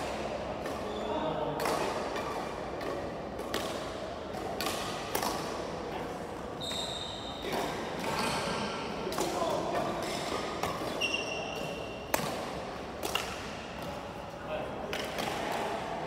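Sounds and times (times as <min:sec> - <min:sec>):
rackets striking shuttlecocks: 0:01.5 - 0:05.8, 0:07.4 - 0:16.0
shoe squeak on wooden floor: 0:06.6 - 0:07.5, 0:08.2 - 0:08.6, 0:10.9 - 0:12.0.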